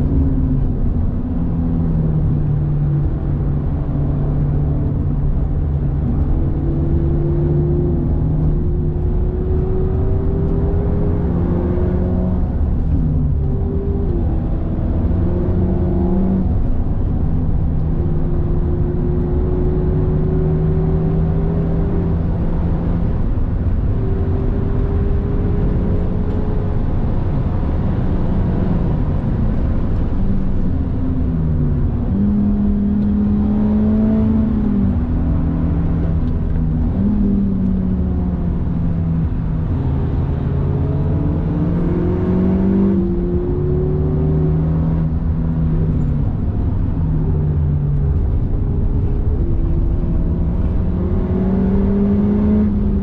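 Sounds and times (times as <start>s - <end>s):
car engine under load: 0.0s - 53.0s
road and tyre rumble: 0.0s - 53.0s.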